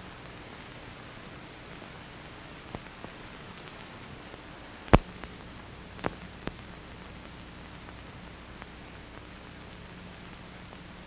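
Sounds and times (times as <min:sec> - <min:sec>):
film soundtrack hiss: 0:00.0 - 0:11.0
sharp clicks and pops: 0:04.9 - 0:05.4, 0:06.0 - 0:09.3.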